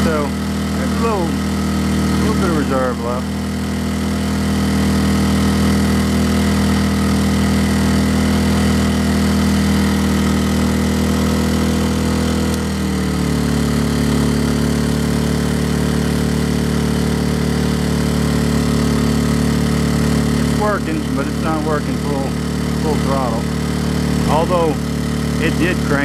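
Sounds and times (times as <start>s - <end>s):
generator running: 0.0s - 26.0s.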